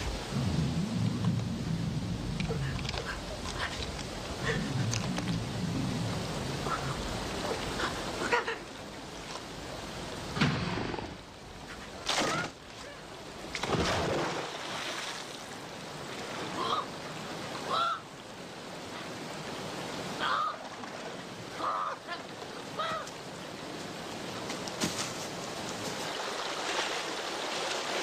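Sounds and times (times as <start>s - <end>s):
noisy bursts: 0.0s - 11.6s
rushing river water: 0.0s - 28.0s.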